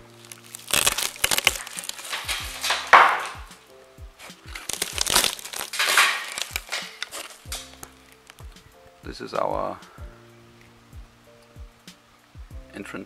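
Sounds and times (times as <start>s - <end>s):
ceiling boards crunching: 0.0s - 3.6s, 4.2s - 8.6s
background music with beat: 0.0s - 13.0s.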